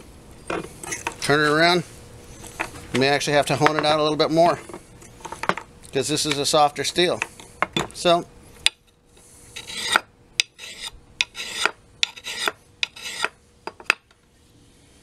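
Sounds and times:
sharpening stone rasping on axe: 9.6 - 13.4.

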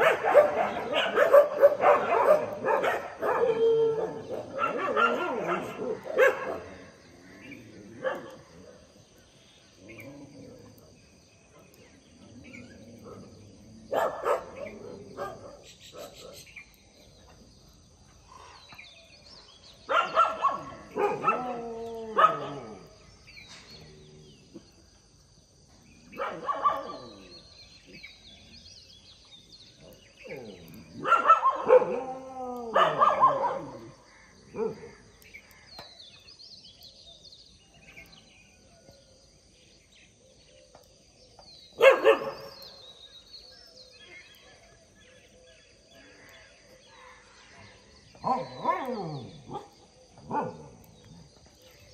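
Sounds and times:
dogs barking: 0.0 - 7.0, 8.0 - 8.9, 13.0 - 16.5, 19.8 - 22.9, 26.1 - 27.3, 30.2 - 35.1, 41.8 - 42.6, 48.1 - 50.9.

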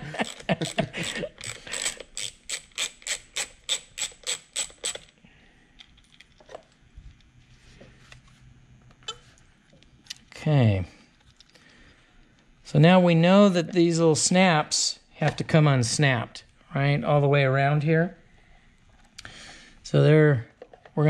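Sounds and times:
socket ratchet clicking: 0.2 - 5.2
faint handling sounds: 5.6 - 10.4.

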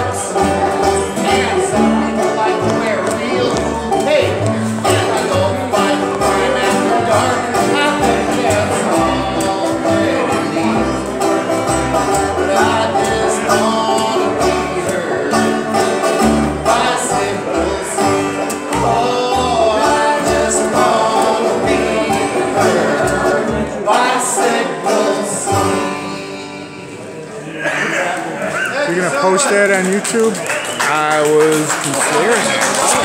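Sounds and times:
man singing: 0.0 - 11.2, 12.3 - 27.1
banjo picking: 0.0 - 27.0, 32.2 - 33.0
plucked upright bass: 0.0 - 27.1, 32.6 - 33.0
strummed acoustic guitar: 0.0 - 27.1.

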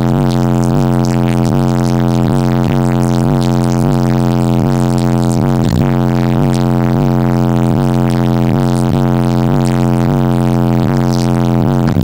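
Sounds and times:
electronic music pulsing bass: 0.0 - 12.0.

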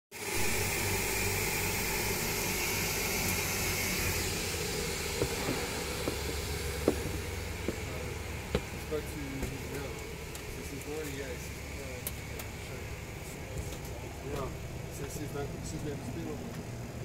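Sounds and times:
high whine: 0.1 - 17.0
steady rushing hiss: 0.2 - 17.0.

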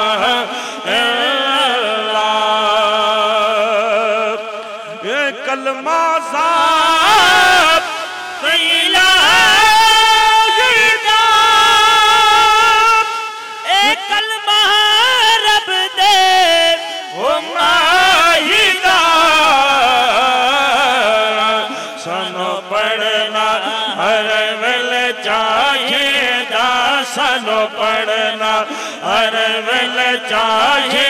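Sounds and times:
two men singing devotional song: 0.0 - 31.0.

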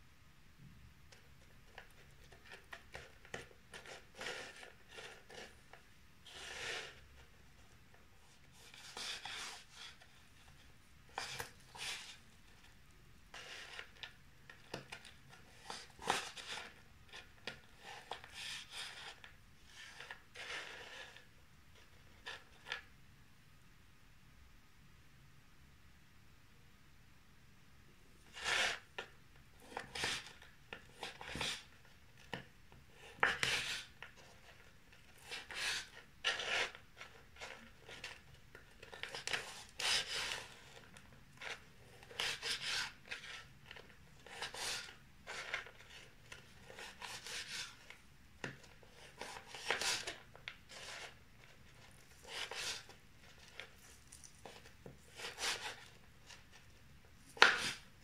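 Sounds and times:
knife cutting prawns: 55.1 - 55.9.

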